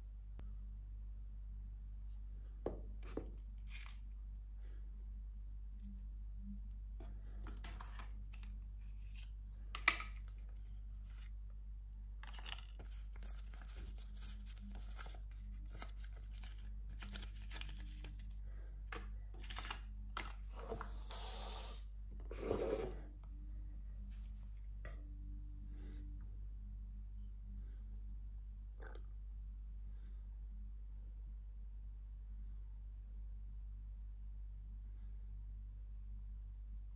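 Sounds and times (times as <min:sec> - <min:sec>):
steady low hum: 0:00.0 - 0:12.2, 0:21.8 - 0:36.9
paper and cardboard rustling: 0:12.2 - 0:18.3.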